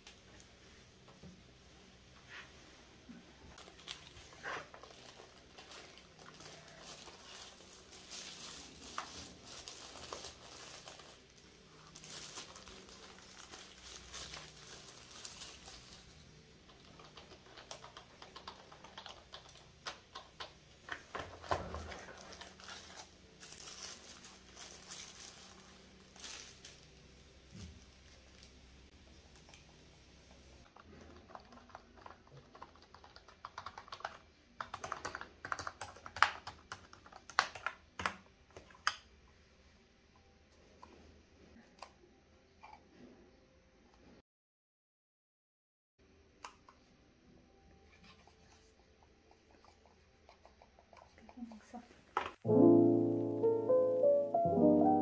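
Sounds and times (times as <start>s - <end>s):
tissue paper rustling: 3.6s - 16.3s, 21.4s - 28.6s
keyboard keys clacking: 52.5s - 55.0s.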